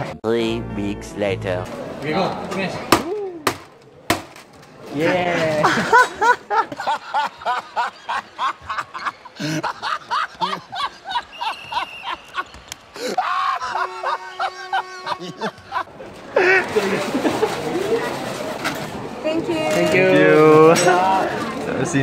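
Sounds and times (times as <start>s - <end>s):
men laughing hard: 5.3s - 17.8s.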